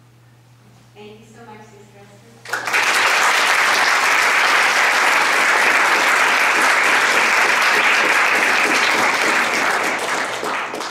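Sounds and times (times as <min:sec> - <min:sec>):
audience applauding: 0:02.5 - 0:10.9.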